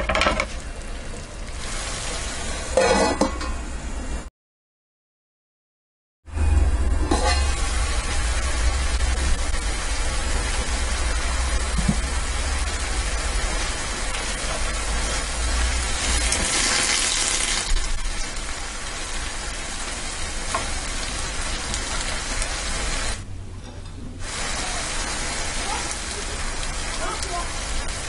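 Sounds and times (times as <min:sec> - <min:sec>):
vegetables sizzling in a pan: 0:00.4 - 0:02.8, 0:07.1 - 0:23.2, 0:24.2 - 0:28.0.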